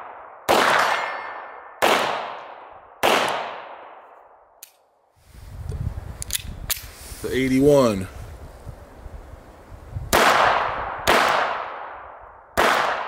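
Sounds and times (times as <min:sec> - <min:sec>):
pistol shots with echo: 0:00.0 - 0:04.0, 0:10.1 - 0:13.0
bullet ringing steel target: 0:00.5 - 0:01.7
metallic pistol clicks: 0:04.6 - 0:04.9, 0:06.2 - 0:06.9
gun handling noise: 0:04.6 - 0:05.0, 0:06.2 - 0:07.0.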